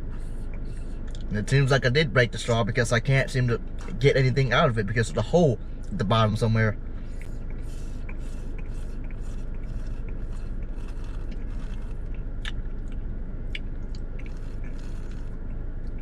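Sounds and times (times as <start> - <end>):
steady low hum: 0.0 - 16.0
slurping through a straw: 7.6 - 12.0.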